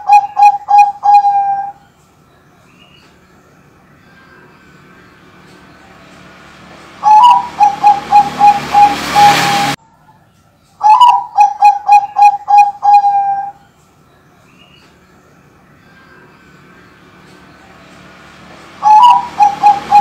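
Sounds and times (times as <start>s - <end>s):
dove cooing: 0.0s - 1.8s, 7.0s - 9.8s, 10.8s - 13.6s, 18.8s - 20.0s.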